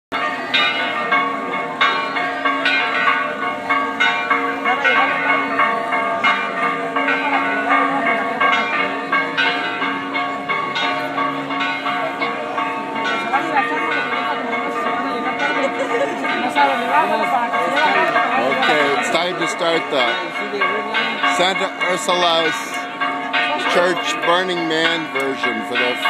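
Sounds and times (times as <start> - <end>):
church bells pealing: 0.1 - 26.0.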